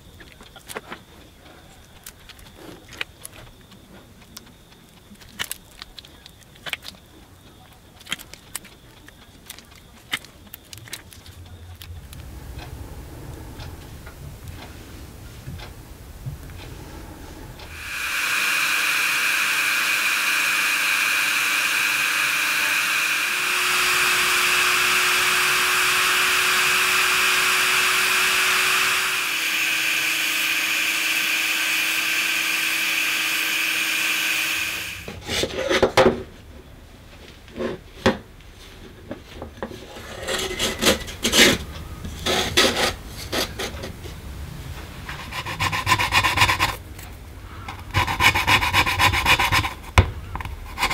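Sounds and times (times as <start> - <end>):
rasping strokes: 8.0 - 35.5, 45.0 - 47.1, 47.7 - 50.9
rotary tool grinding whine: 10.9 - 35.2.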